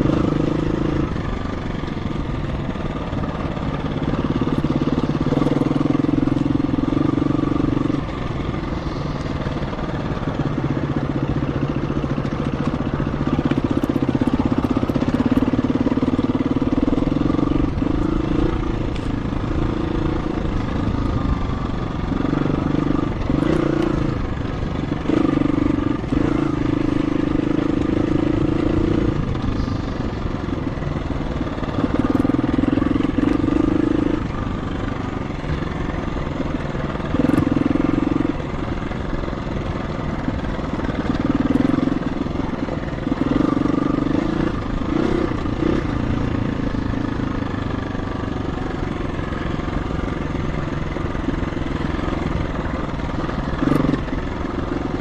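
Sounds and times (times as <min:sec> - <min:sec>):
dirt bike engine revving: 0:00.0 - 0:39.1, 0:40.2 - 0:55.0.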